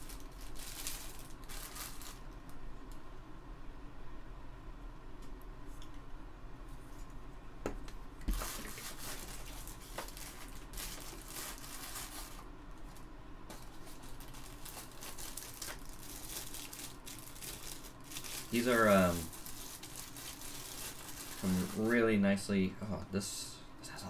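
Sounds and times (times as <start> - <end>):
plastic bag crinkling: 0.0 - 2.5, 8.2 - 22.2.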